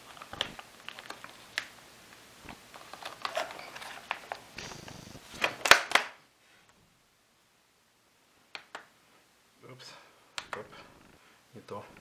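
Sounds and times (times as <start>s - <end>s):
plastic bag rustling: 2.4s - 5.7s.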